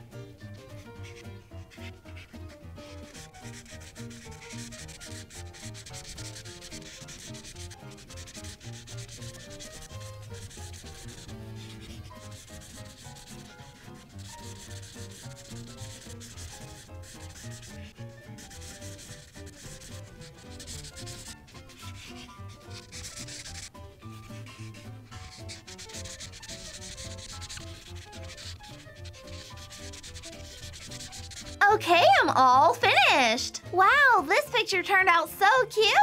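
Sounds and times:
marker scratching on paper: 0.5s - 32.2s.

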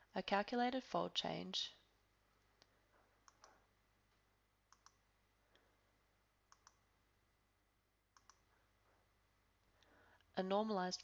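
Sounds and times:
computer mouse clicks: 2.6s - 3.6s, 4.7s - 5.0s, 6.5s - 6.8s, 8.1s - 8.5s.

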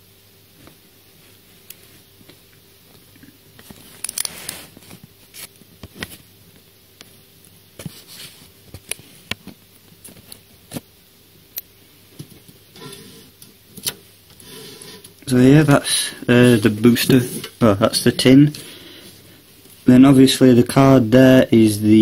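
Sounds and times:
faint electrical buzz: 0.0s - 22.0s.

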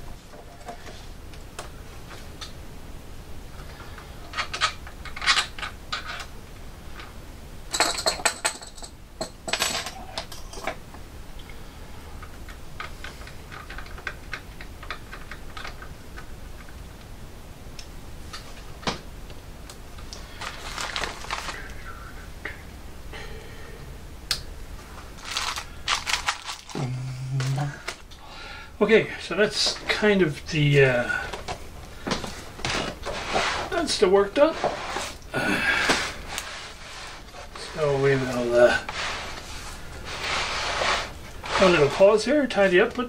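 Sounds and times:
small clicks taps and rattles: 12.2s - 17.1s.

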